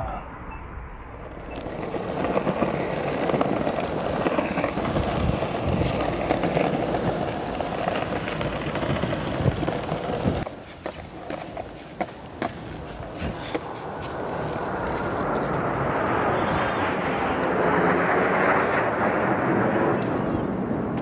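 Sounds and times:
skateboard wheels rolling on bricks: 0:01.3 - 0:16.5
skateboard clicks: 0:01.6 - 0:15.6.

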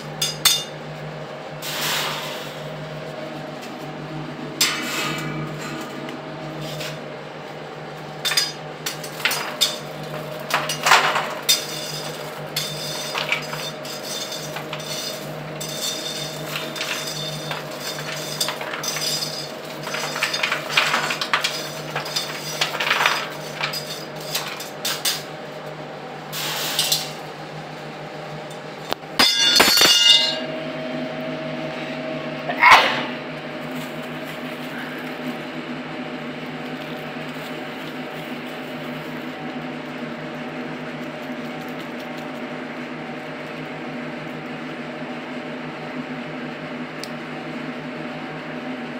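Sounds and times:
machine hum: 0:00.0 - 0:48.9
metal trays clattering: 0:08.3 - 0:25.3, 0:29.2 - 0:30.4.

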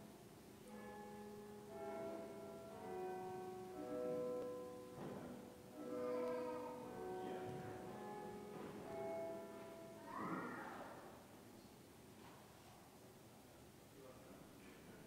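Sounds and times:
slow instrumental music: 0:00.0 - 0:10.2.

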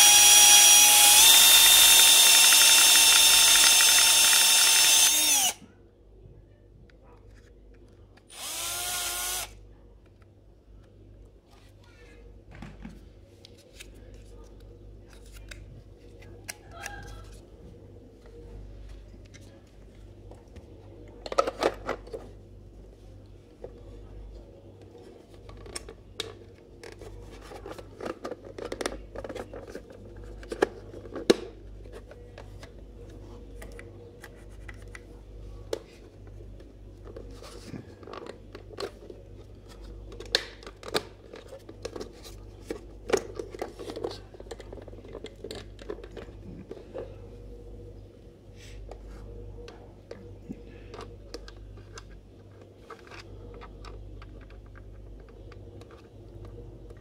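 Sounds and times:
plastic scraping and clicking: 0:25.3 - 0:35.1, 0:35.7 - 0:47.2, 0:49.7 - 0:57.0.

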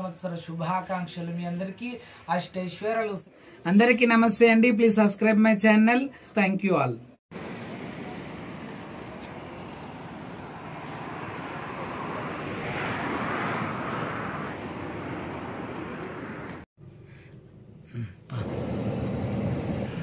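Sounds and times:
street noise hiss and rumble: 0:07.3 - 0:20.0.

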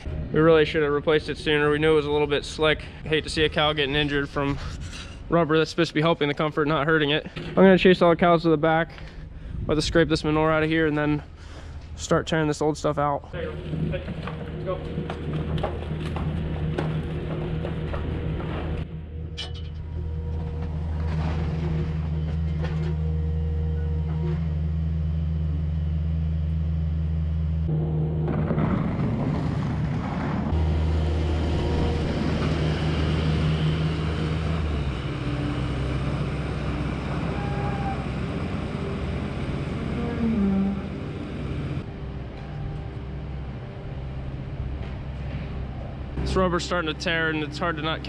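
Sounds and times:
skid steer engine running: 0:13.4 - 0:48.0.

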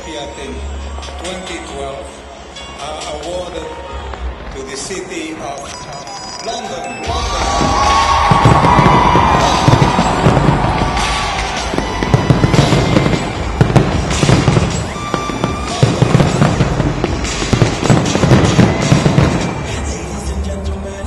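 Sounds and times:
music playing: 0:00.0 - 0:21.0
fireworks bangs and booms: 0:07.2 - 0:20.1.

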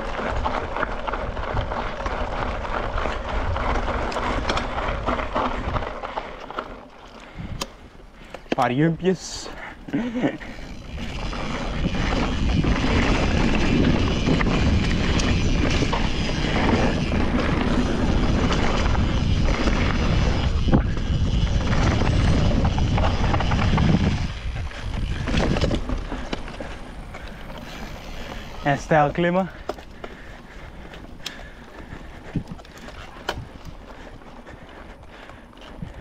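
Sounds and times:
bike tyres rumbling on dirt: 0:00.0 - 0:36.0
wind on camera microphone: 0:10.7 - 0:28.6.

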